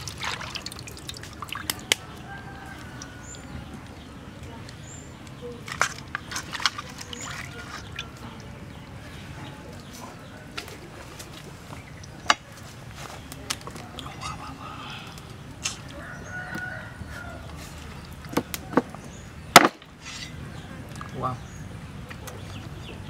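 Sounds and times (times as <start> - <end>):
water sloshing in a metal basin: 0.0 - 14.1, 17.0 - 18.8
chickens calling faintly: 0.3 - 19.4.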